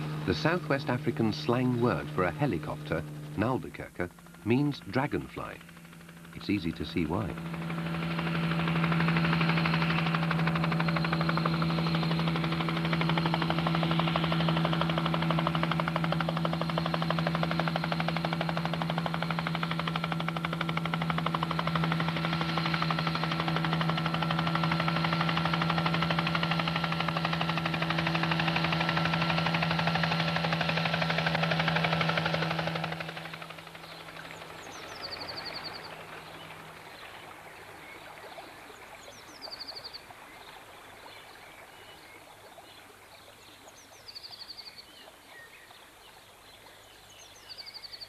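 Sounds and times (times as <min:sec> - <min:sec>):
helicopter rotor chopping: 0:00.0 - 0:38.3
helicopter engine hum: 0:00.0 - 0:41.9.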